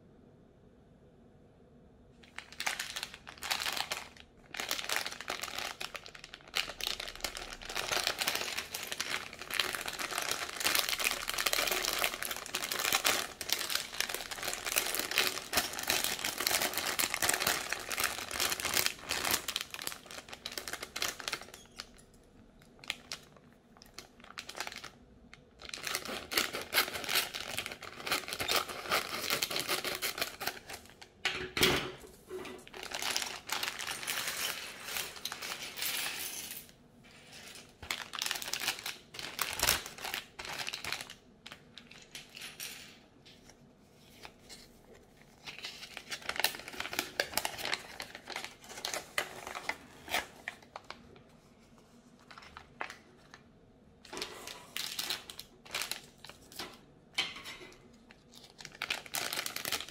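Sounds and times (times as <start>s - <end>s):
plastic bag crinkling: 2.2s - 31.2s, 32.1s - 42.6s, 43.4s - 56.9s, 57.7s - 59.9s.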